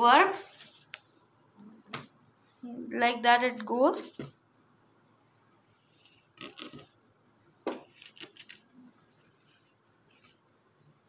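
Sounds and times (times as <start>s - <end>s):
paper scraping across wooden table: 5.8s - 7.0s.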